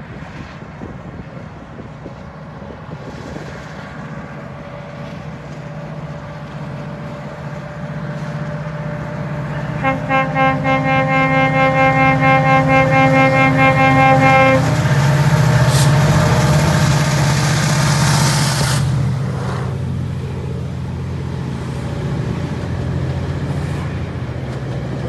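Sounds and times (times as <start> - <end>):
diesel locomotive engine hum: 0.0 - 25.0
train horn chord: 9.4 - 17.3.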